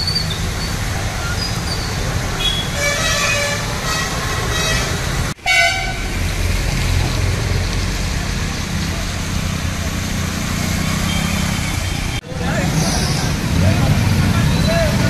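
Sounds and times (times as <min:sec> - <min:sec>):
engine rumble: 0:00.0 - 0:15.0
vehicle horns honking: 0:02.4 - 0:06.2.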